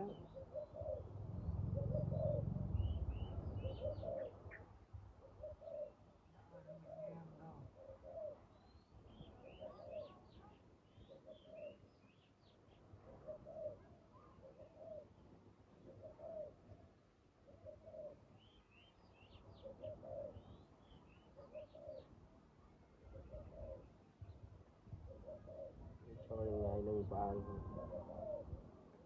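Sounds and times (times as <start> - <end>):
doves cooing: 0.0 - 4.6, 5.2 - 8.5, 9.4 - 10.2, 13.1 - 13.8, 14.4 - 15.1, 15.9 - 16.6, 17.5 - 18.2, 19.6 - 20.5, 21.4 - 22.1, 23.1 - 23.9, 25.1 - 28.6
small birds chirping: 0.0 - 16.6, 17.5 - 28.4
low rumble: 1.1 - 3.6.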